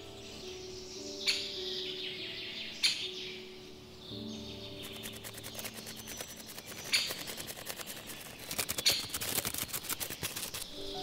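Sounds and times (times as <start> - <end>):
butterfly wings fluttering: 4.8 - 11.0.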